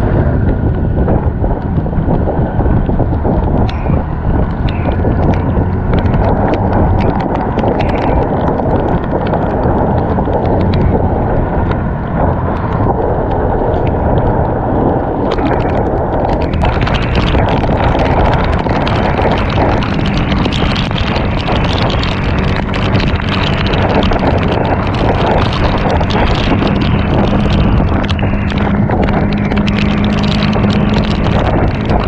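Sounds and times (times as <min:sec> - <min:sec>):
scooter running: 0:00.0 - 0:32.0
wet road noise: 0:00.0 - 0:32.0
wind buffeting microphone: 0:00.0 - 0:32.0
small ticks: 0:03.6 - 0:11.0, 0:15.2 - 0:32.0.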